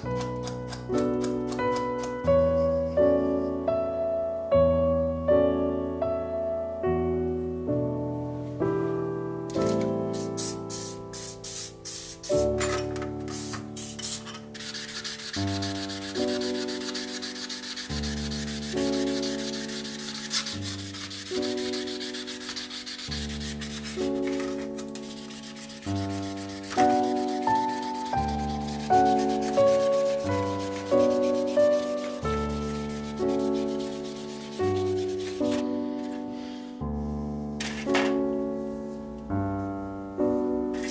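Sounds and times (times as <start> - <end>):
slow keyboard music: 0.0 - 40.9
scrubbing steel blades in metal tray: 12.7 - 32.2.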